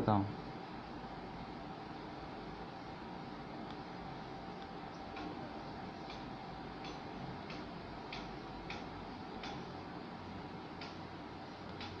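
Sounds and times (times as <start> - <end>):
faint steady hum: 0.0 - 12.0
marker ticking on whiteboard: 6.0 - 9.7.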